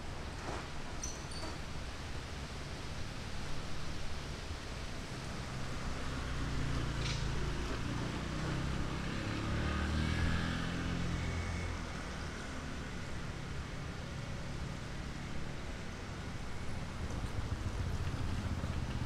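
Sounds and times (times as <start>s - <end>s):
vehicle engine passing: 5.5s - 12.4s.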